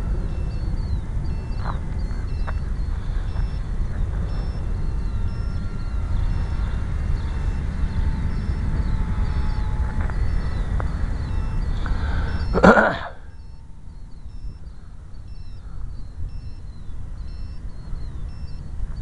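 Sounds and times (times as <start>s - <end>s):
wind buffeting microphone: 0.0s - 12.6s.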